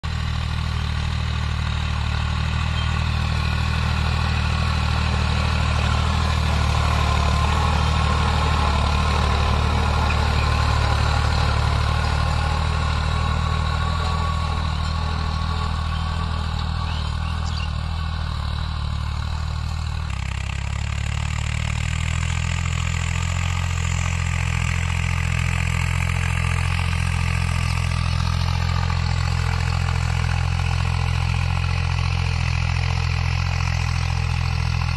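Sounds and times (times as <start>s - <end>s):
tractor diesel engine running: 0.0s - 34.9s.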